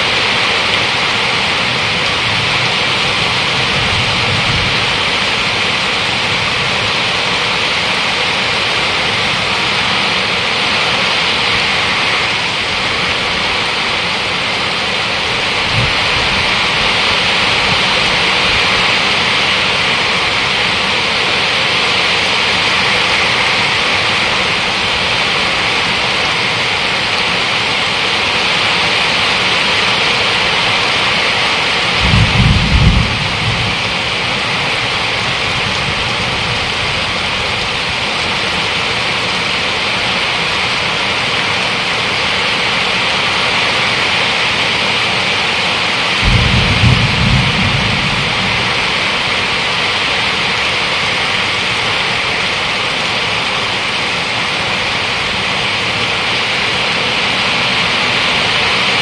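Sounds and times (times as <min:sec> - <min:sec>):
heavy rain pouring: 0:00.0 - 0:59.0
low rumble: 0:46.2 - 0:49.8.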